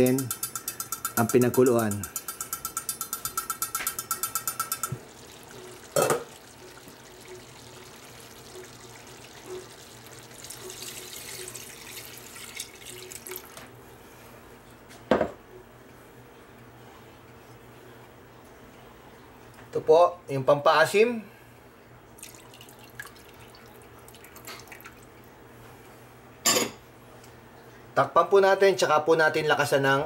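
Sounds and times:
broth pouring into a pot: 3.6 - 13.6, 22.1 - 25.3.

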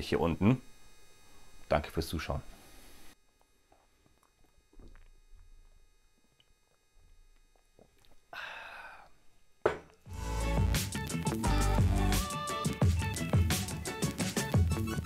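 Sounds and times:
man gulping from bottle: 3.4 - 5.6, 7.5 - 9.2
music: 10.1 - 15.0.

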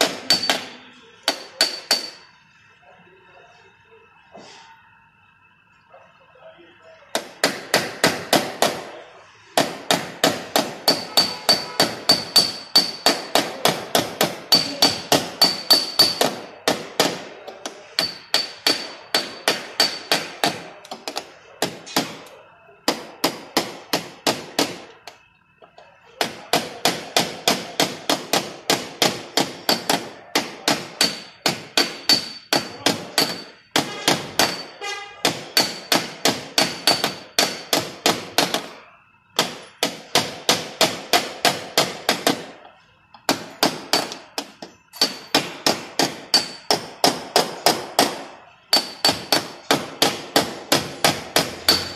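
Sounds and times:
hammer tapping on car panel: 0.0 - 2.2, 9.6 - 17.3, 18.0 - 22.2, 22.9 - 25.2, 26.2 - 38.7, 43.2 - 51.9.

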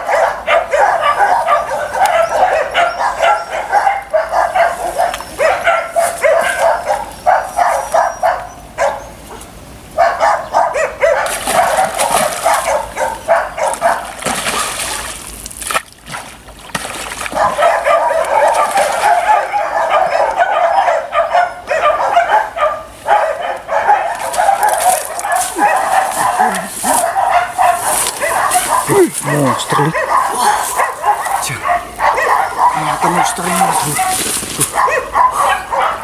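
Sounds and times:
dog whining and yipping: 0.2 - 9.4, 19.1 - 22.5.

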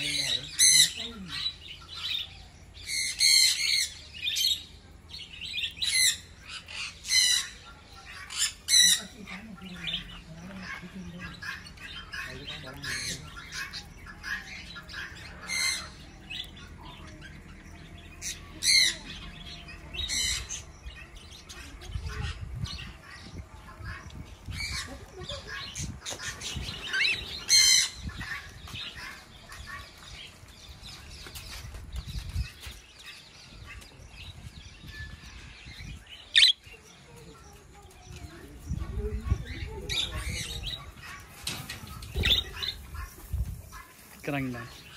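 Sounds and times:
budgerigars chirping: 0.0 - 36.8, 38.2 - 44.9
loud sharp bird squawks: 36.4 - 36.6.

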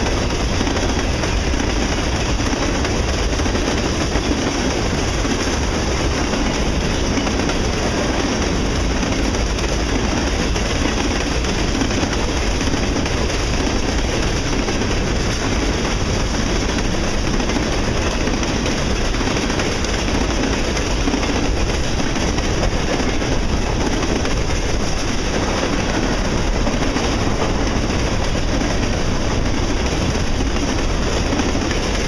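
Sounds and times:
freight train wheels rumbling: 0.0 - 32.0.

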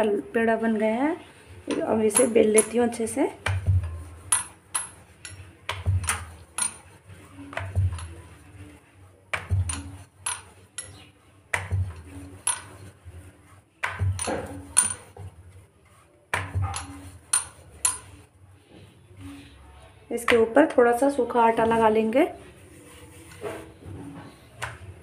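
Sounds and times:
rolling pin clacking on wooden board: 1.7 - 8.2, 9.3 - 12.8, 13.8 - 15.3, 16.3 - 18.2.

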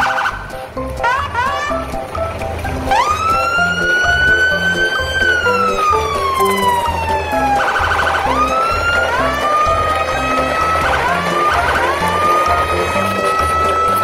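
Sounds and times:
background music with steady beat: 0.0 - 14.0
siren wailing: 2.9 - 14.0.

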